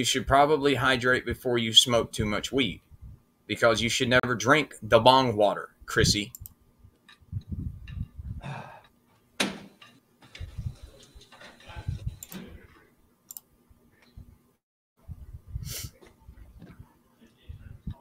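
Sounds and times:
phone microphone handling noise: 9.4s - 12.9s.

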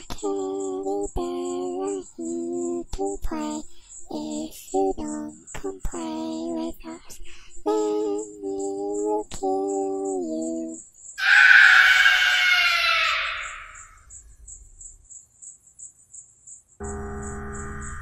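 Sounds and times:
high singing voice: 0.0s - 14.0s
loud shrill harsh sound: 11.2s - 14.0s.

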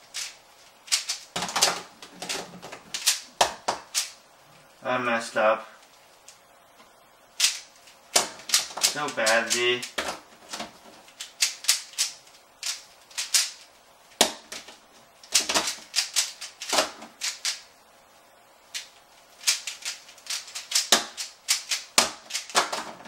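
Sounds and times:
plastic puzzle cube clicking: 11.2s - 13.6s, 15.2s - 17.6s, 18.8s - 22.9s.

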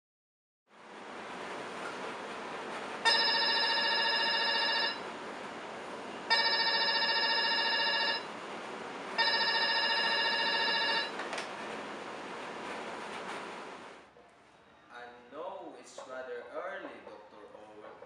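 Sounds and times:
desk telephone ringing: 3.0s - 5.0s, 6.3s - 8.3s, 9.2s - 11.2s.

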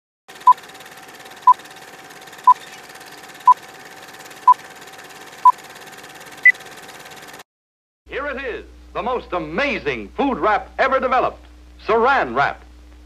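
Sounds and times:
steady hum: 8.2s - 13.0s.

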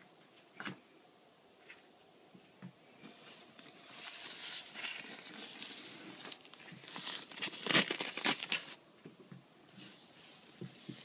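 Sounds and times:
protective wrap rustling: 3.1s - 8.8s.

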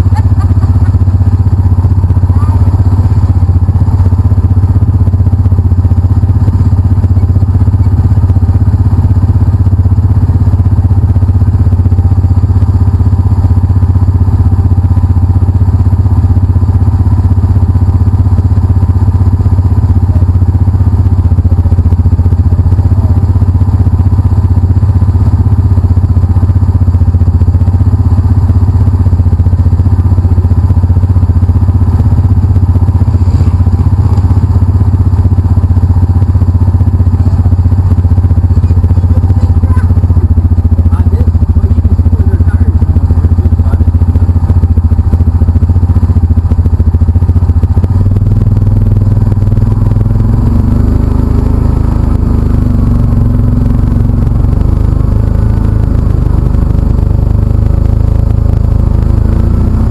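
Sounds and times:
engine idling: 0.0s - 59.9s.

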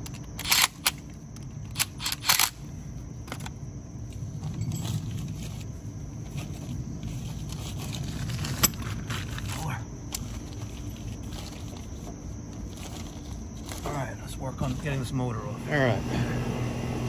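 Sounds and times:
low background rumble: 0.0s - 17.0s
hand tools clinking and rattling: 4.4s - 5.6s.

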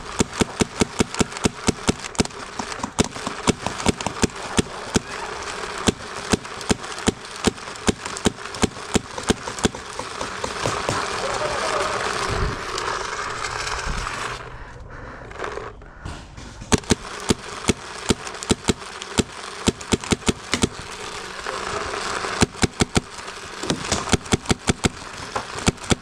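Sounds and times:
paintball gunfire pops: 16.6s - 20.8s.

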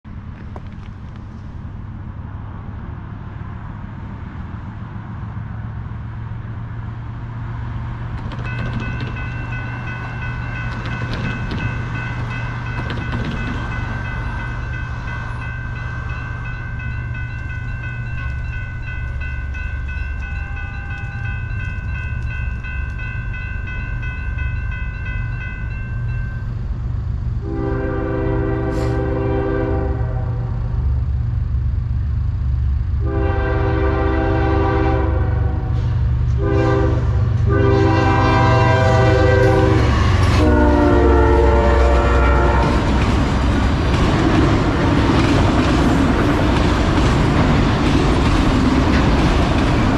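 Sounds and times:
crossing warning bell ringing: 8.2s - 30.4s, 33.0s - 35.5s, 36.4s - 49.9s
locomotive air horn chord: 27.4s - 30.6s, 33.0s - 42.9s
steady low rumble: 29.8s - 33.1s.

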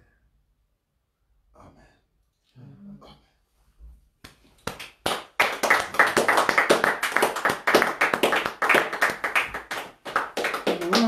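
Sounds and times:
hands clapping fast: 4.2s - 11.0s.

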